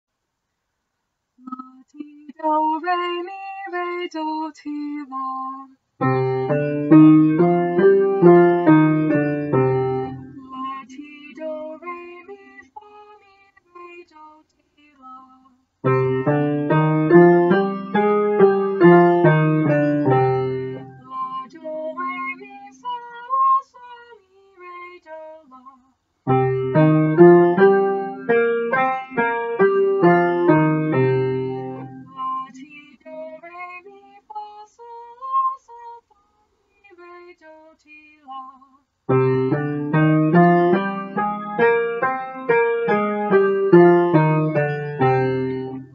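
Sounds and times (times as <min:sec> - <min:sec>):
woman singing scale: 0:01.4 - 0:14.3, 0:14.9 - 0:25.7, 0:26.3 - 0:36.0, 0:37.0 - 0:45.9
upright piano playing scale: 0:06.0 - 0:10.4, 0:15.8 - 0:21.3, 0:26.3 - 0:32.2, 0:39.1 - 0:45.9.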